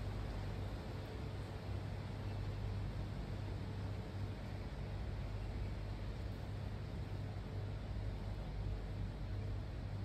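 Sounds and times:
steady low hum and hiss: 0.0s - 10.0s.

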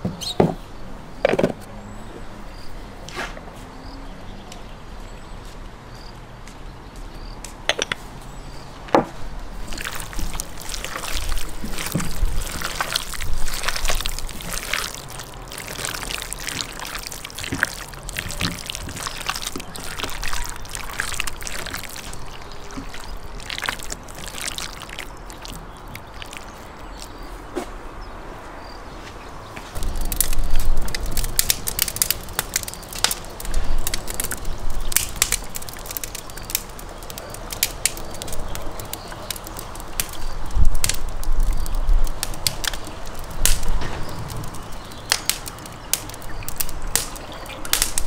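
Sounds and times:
hands squelching raw liver: 9.6s - 27.4s, 29.8s - 48.0s.

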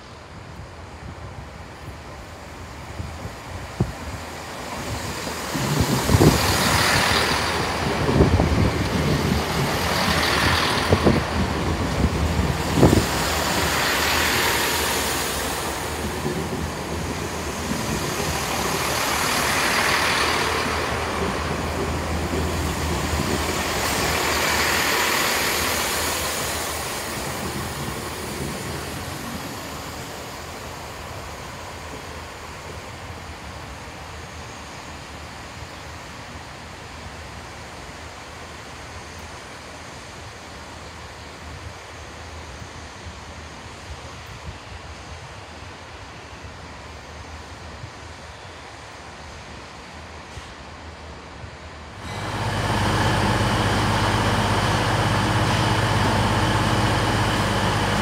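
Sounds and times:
rushing of passing carriages: 3.6s - 32.2s, 52.0s - 58.0s
diesel engine drone: 5.4s - 30.3s, 51.9s - 58.0s
train wheels knocking on rail joints: 15.7s - 26.0s.

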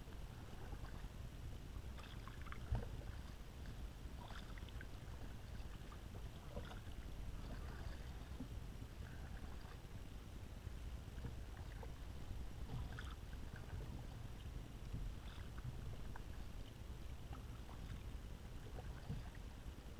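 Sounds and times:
paddle pulling through water: 0.0s - 19.9s
steady low rumble: 0.0s - 19.9s
water drips and splashes: 18.7s - 19.4s.

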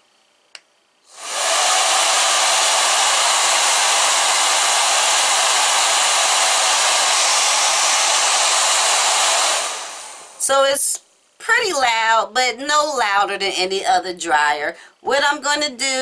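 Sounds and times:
hair dryer running: 1.1s - 10.7s.

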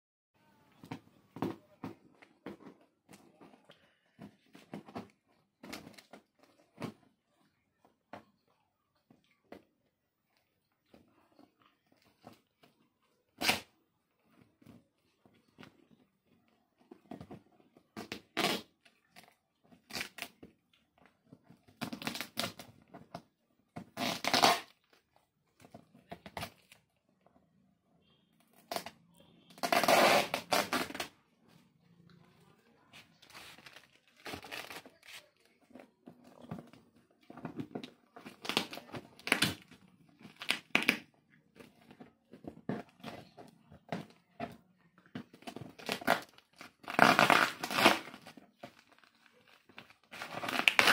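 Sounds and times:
packing tape tearing: 13.4s - 13.7s, 18.0s - 18.7s, 24.0s - 24.8s, 29.6s - 31.1s, 33.5s - 35.1s, 45.7s - 48.3s, 50.0s - 50.9s.

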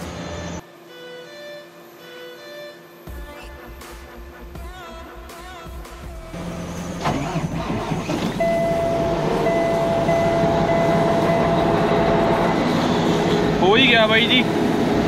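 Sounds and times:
diesel engine starting and running: 0.0s - 0.6s, 6.1s - 15.0s
warning buzzer: 8.4s - 13.2s.

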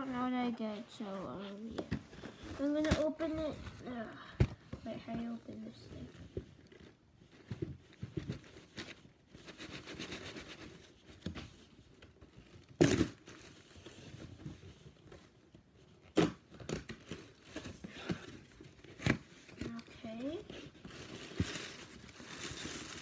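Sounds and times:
gift wrapping tearing and crinkling: 11.9s - 23.0s.

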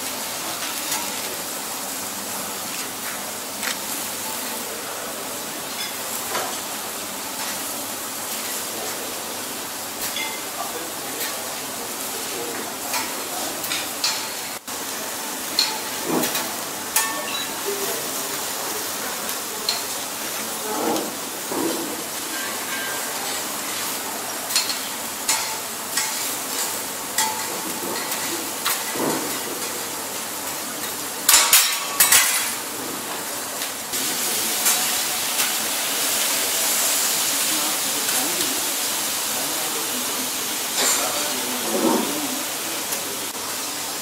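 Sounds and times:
food sizzling on a griddle: 0.0s - 44.0s.

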